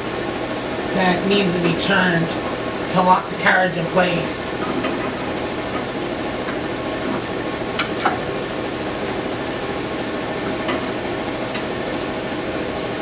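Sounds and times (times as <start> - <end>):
mechanical hum and hiss: 0.0 - 13.0.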